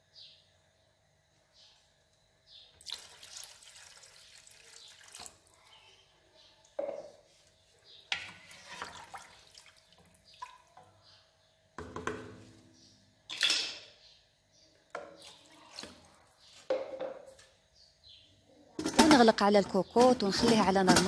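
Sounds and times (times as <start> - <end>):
spatula scraping and knocking pot: 8.1 - 9.0, 18.8 - 21.0
broth sloshing and splashing: 8.5 - 10.8.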